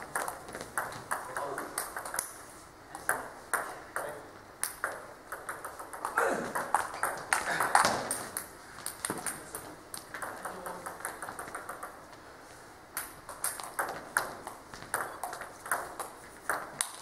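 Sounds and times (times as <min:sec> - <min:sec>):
table tennis ball clicks: 0:03.0 - 0:12.0, 0:12.9 - 0:17.0.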